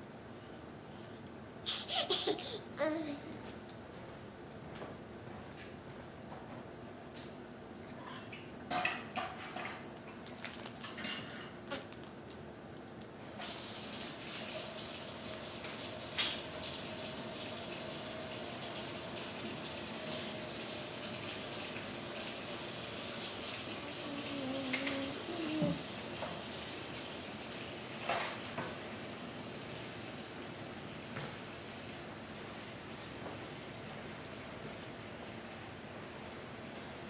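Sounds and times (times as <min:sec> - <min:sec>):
tap water running: 0:13.2 - 0:37.0.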